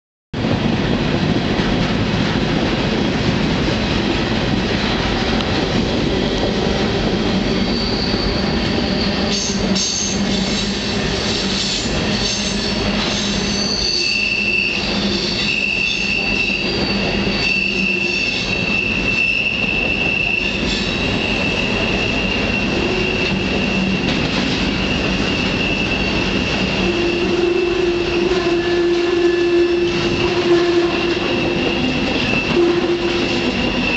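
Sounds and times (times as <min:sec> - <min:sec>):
train wheels rumbling on rail: 0:00.4 - 0:33.9
lower wheel squeal: 0:07.3 - 0:33.9
high-pitched wheel squeal: 0:07.4 - 0:33.9.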